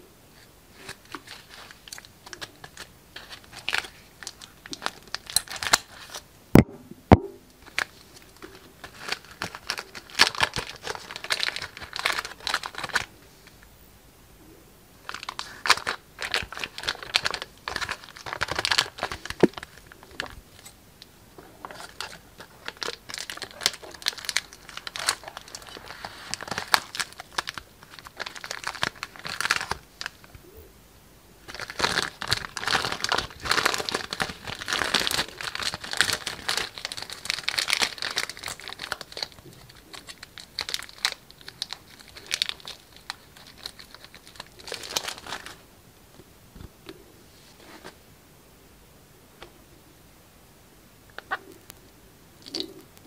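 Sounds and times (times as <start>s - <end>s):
plastic bag crinkling: 0.8s - 6.2s, 7.6s - 13.1s, 15.0s - 20.8s, 21.4s - 30.3s, 31.4s - 45.6s
foam beads rustling: 7.6s - 13.1s, 21.6s - 30.2s, 31.5s - 45.6s.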